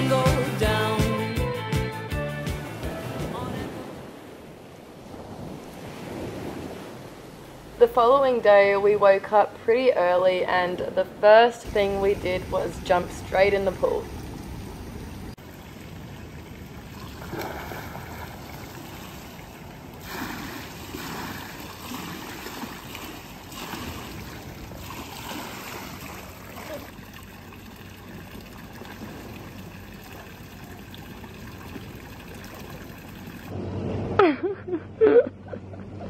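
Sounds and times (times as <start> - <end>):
water trickling in pool: 13.3 - 33.5
person swimming splashes: 15.5 - 33.5.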